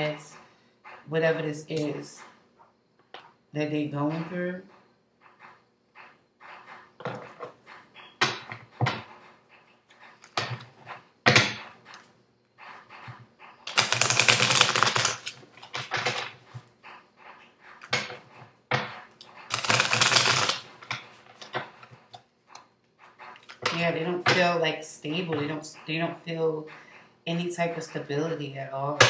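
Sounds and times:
deck of cards shuffling: 0:13.0 - 0:16.0, 0:19.4 - 0:20.8.

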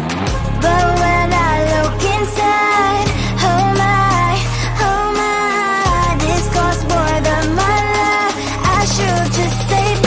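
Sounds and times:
pop music: 0:00.0 - 0:10.0.

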